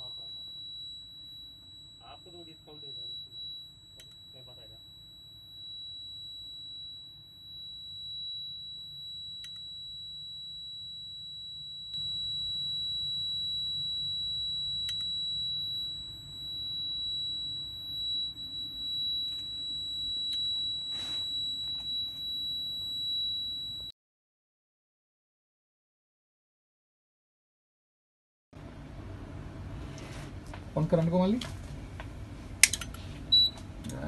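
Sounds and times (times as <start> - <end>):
high-pitched alarm buzzer tone: 0.0 - 23.9.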